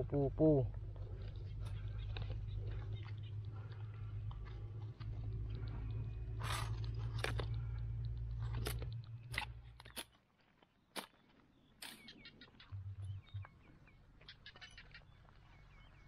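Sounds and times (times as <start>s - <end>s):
low rumble: 0.0s - 10.0s, 12.6s - 14.2s
dry soil crunching: 0.0s - 16.0s.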